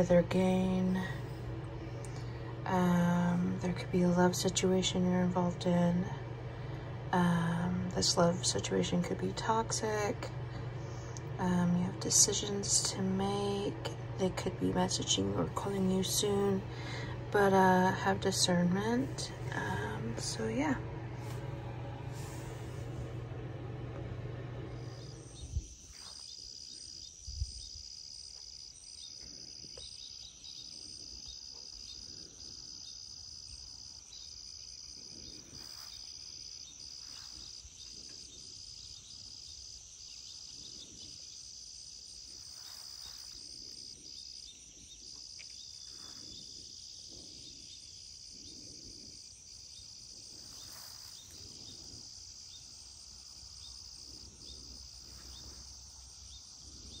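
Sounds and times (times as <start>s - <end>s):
insects buzzing: 0.0s - 57.0s
insect trill: 24.8s - 57.0s.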